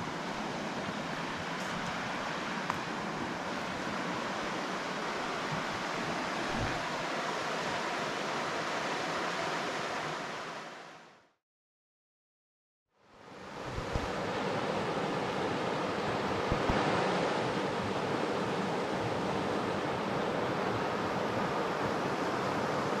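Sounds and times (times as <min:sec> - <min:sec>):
river rapids rushing: 0:00.0 - 0:10.9.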